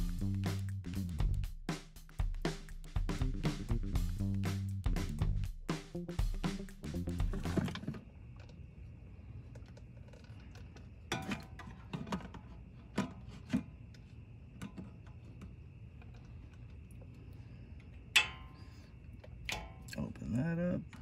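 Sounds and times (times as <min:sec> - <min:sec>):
faint high hum: 0:07.1 - 0:21.0.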